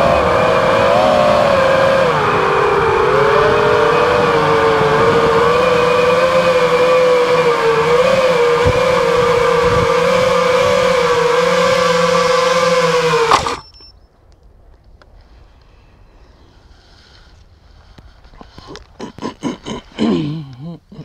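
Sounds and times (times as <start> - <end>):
drone motors whining: 0.0 - 14.1.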